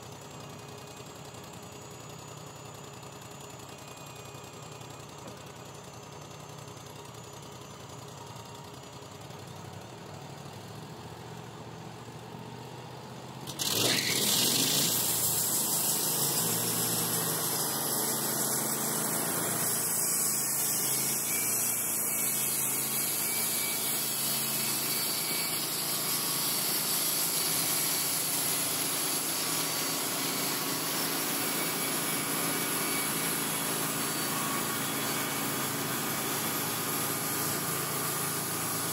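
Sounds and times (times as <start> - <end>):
sawmill engine: 0.0 - 38.9
band blade sawing through log: 13.5 - 38.9.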